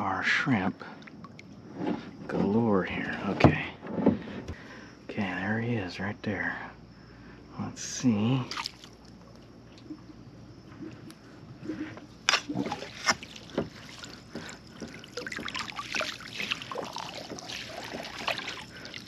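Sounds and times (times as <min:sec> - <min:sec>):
net splashing through water: 0:08.3 - 0:09.2, 0:11.6 - 0:19.0.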